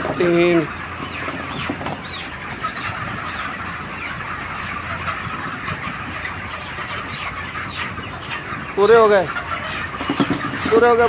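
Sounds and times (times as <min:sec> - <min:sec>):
chickens cheeping and clucking: 0:00.0 - 0:11.0.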